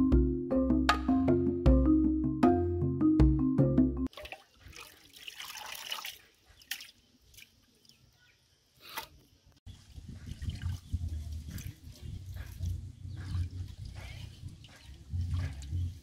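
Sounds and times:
water dripping into basin: 4.0 - 8.0
water splashing: 4.1 - 8.0.

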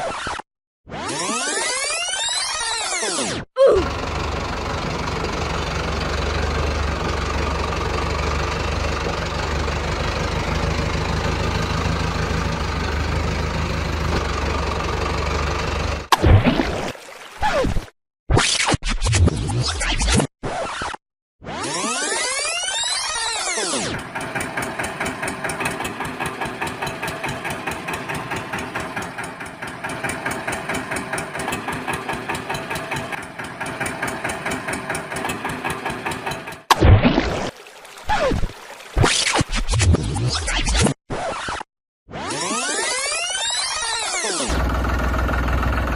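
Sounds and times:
vehicle engine idling: 3.8 - 16.1, 23.9 - 36.7, 44.5 - 45.9.

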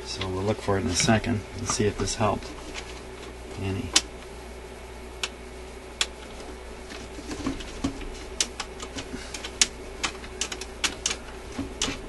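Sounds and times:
record changer control clicking: 5.2 - 5.4, 6.0 - 6.5, 7.3 - 12.0.

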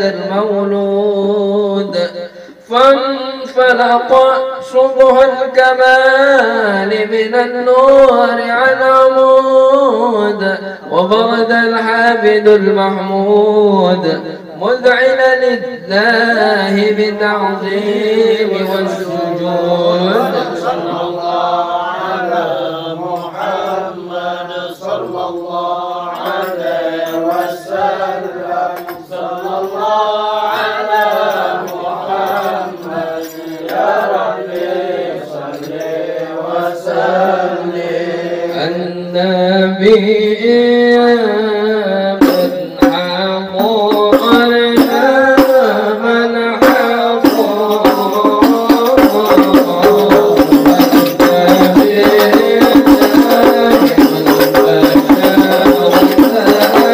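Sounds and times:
group of voices singing: 15.9 - 56.9
hand-struck frame drums: 42.2 - 45.8, 46.6 - 56.9.

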